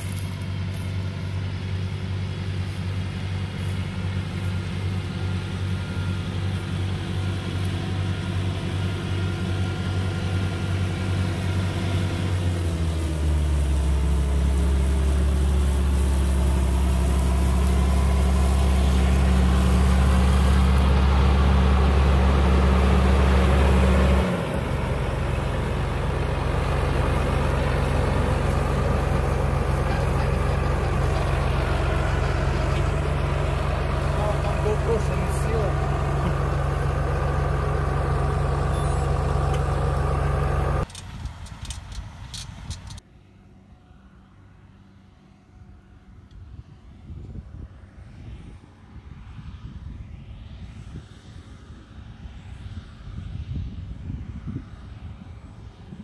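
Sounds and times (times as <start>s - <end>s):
diesel engine running: 0.0s - 43.0s.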